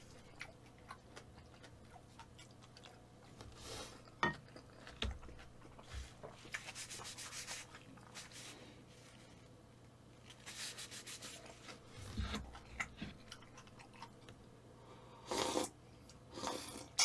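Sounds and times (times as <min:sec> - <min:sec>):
wet chewing clicks: 0:00.0 - 0:06.8, 0:11.5 - 0:14.5
tissue rubbing across mouth: 0:05.9 - 0:09.3, 0:10.3 - 0:11.8.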